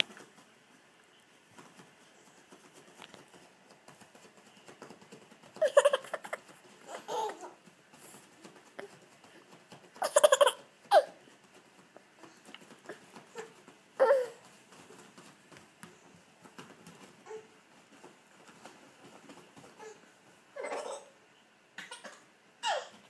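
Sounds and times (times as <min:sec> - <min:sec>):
toddler laughing: 0:05.6 - 0:07.6, 0:10.0 - 0:11.2, 0:20.6 - 0:21.2, 0:21.8 - 0:23.0.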